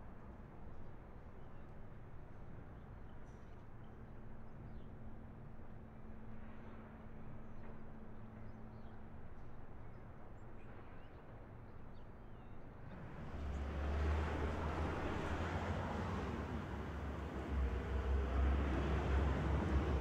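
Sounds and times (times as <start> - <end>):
motor vehicle rumble: 12.9 - 20.0.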